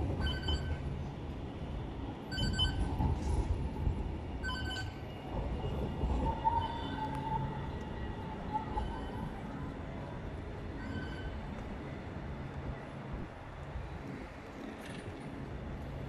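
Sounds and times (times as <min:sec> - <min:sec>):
tram rumbling: 0:00.0 - 0:16.0
wheels squealing on rails: 0:00.1 - 0:00.8, 0:02.3 - 0:09.9, 0:10.7 - 0:11.5.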